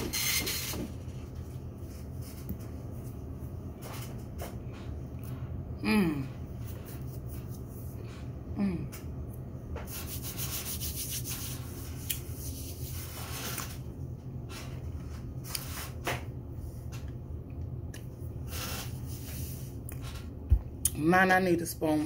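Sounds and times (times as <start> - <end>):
steady low hum: 0.0 - 22.0
short falling vocal hum: 5.8 - 6.4
rubbing and scraping: 9.8 - 13.8.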